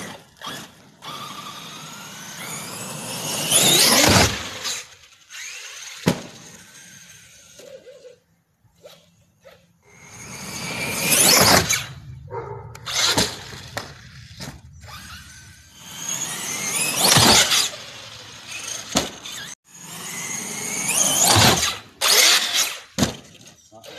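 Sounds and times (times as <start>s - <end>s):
toy truck motor whine: 0.0s - 8.2s, 9.8s - 12.0s, 12.7s - 23.9s.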